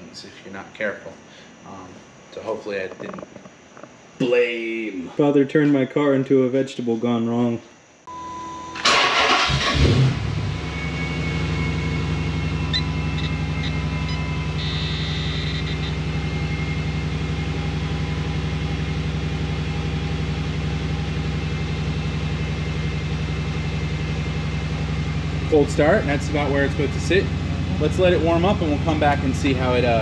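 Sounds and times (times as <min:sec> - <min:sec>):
car engine starting and idling: 0:08.6 - 0:30.0.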